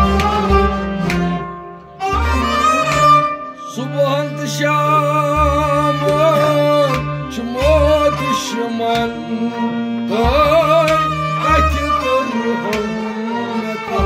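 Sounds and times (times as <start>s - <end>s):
bowed string melody with vibrato: 0.0s - 14.0s.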